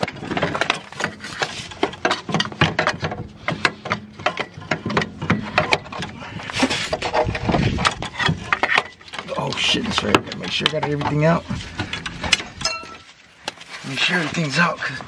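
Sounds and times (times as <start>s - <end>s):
hand tools clicking on metal: 6.9s - 13.0s.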